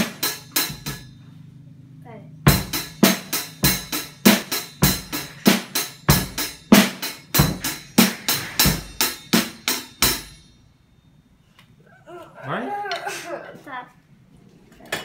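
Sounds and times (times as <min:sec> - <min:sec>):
snare drum: 0:00.0 - 0:00.9, 0:02.5 - 0:10.3
bass drum: 0:02.5 - 0:10.3
hi-hat ticking: 0:02.5 - 0:10.5.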